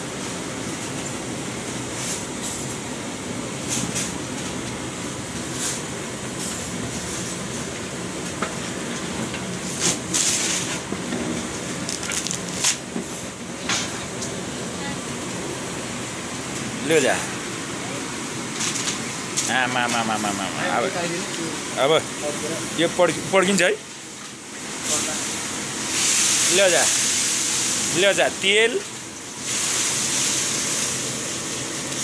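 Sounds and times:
oil frying: 0.0 - 32.0.

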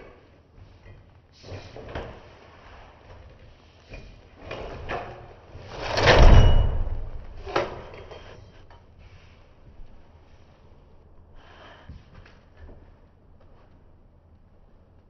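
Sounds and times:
blinds clicking and rattling: 4.3 - 8.4
sliding door rushing open: 4.4 - 8.0.

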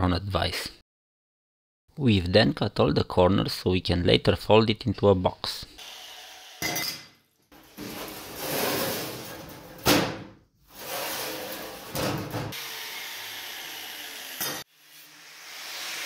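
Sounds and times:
sheet metal rubbing and scraping: 7.6 - 12.5.

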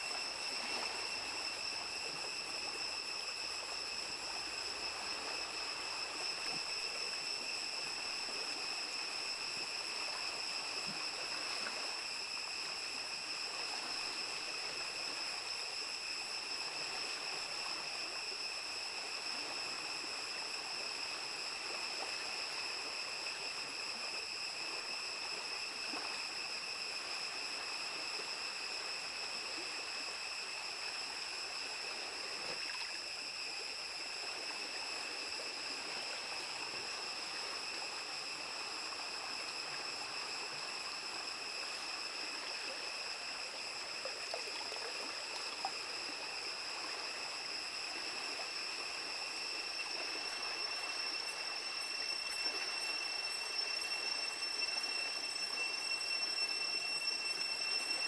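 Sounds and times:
high-pitched whine: 0.0 - 58.0
stream flowing over stones: 31.2 - 53.1.

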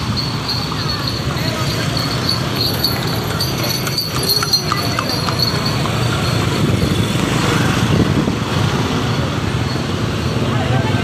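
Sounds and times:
horse hooves clopping on asphalt: 0.0 - 6.9
motorbikes: 0.0 - 11.0
street traffic: 0.0 - 11.0.

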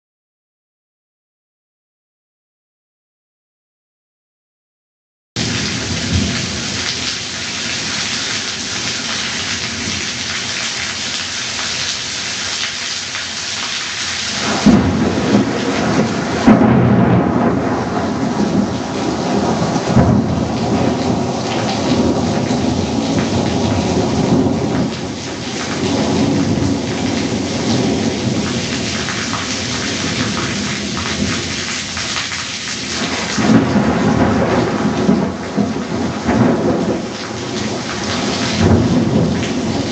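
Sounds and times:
heavy rain pouring: 5.4 - 39.9
rolling thunder: 14.3 - 31.5, 32.9 - 39.9.

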